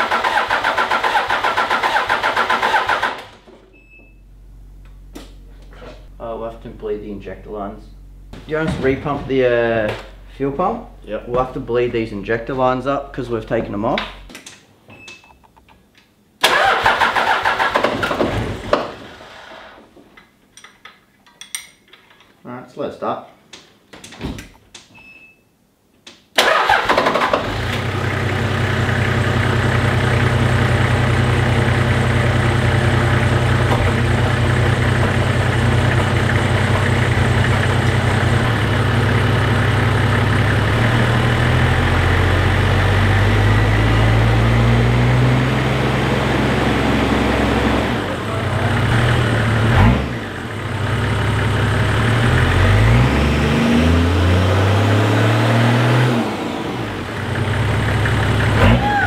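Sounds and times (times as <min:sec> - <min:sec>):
diesel engine starting and revving: 0:00.0 - 0:03.5, 0:16.4 - 0:19.8, 0:26.4 - 0:59.0.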